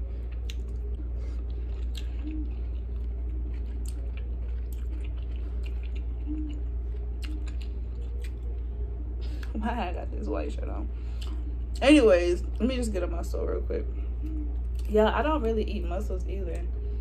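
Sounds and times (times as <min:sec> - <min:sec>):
person chewing food: 0:00.0 - 0:08.6, 0:11.1 - 0:11.8
steady low hum: 0:00.0 - 0:17.0.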